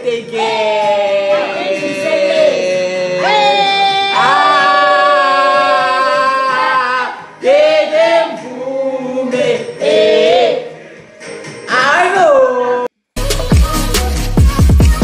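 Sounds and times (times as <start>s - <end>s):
voices singing: 0.0s - 11.8s.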